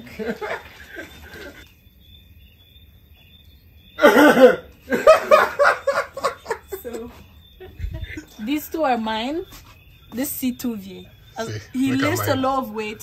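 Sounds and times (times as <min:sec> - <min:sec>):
night insects chirping: 0:00.0 - 0:13.0
short vocal sounds: 0:11.4 - 0:12.5
person calling out loudly: 0:11.4 - 0:12.6.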